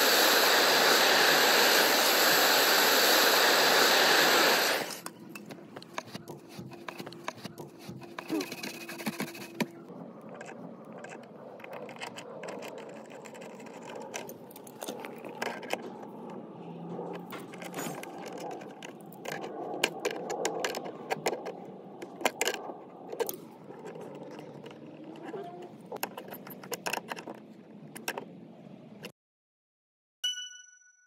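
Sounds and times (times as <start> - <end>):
metallic clicks and scrapes: 4.9 - 28.3.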